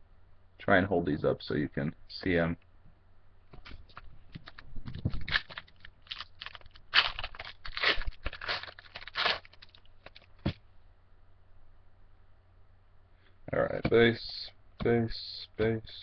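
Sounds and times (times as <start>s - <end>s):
foil wrapper tearing and crinkling: 4.4s - 10.4s.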